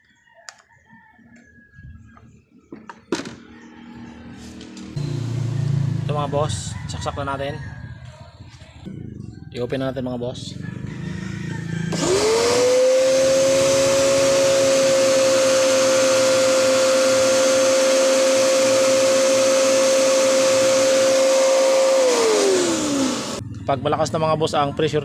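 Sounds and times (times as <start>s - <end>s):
electric pressure washer motor humming: 4.7s - 6.0s, 11.9s - 23.4s.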